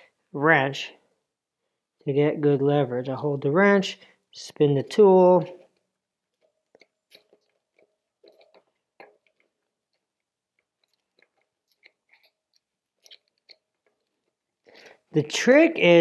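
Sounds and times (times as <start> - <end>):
small metal clicks and ticks: 5.7 - 15.0.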